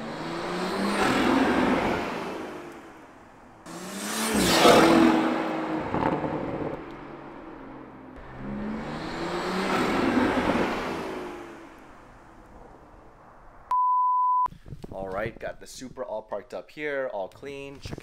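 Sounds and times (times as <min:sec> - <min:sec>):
sports car passing by: 0:00.0 - 0:13.6.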